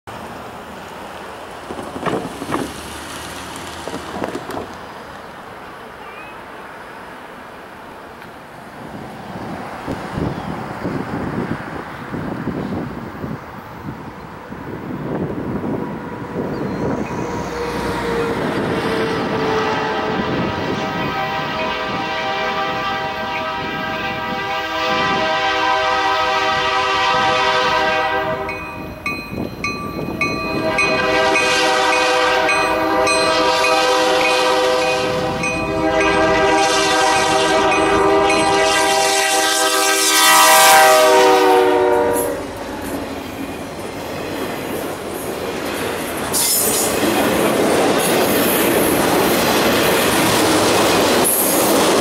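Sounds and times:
rail cars rumbling and clattering: 0:00.1 - 0:52.0
locomotive air horn blowing: 0:16.0 - 0:28.7, 0:30.5 - 0:42.6.

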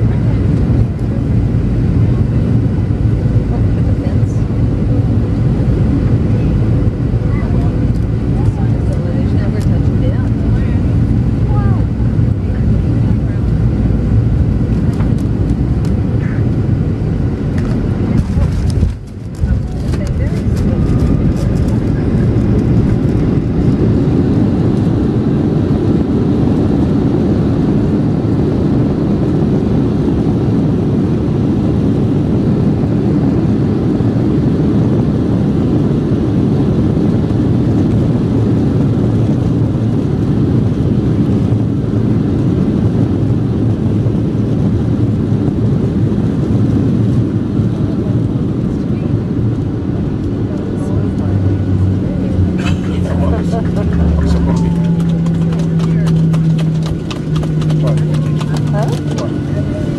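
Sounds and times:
jet engines rumbling: 0:00.0 - 0:59.9
wheels rolling on runway: 0:53.0 - 0:59.9.

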